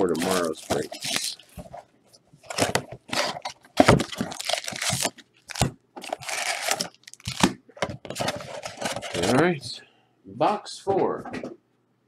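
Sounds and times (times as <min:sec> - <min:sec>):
plastic wrapping cut and torn: 0:00.0 - 0:01.4, 0:03.1 - 0:07.5.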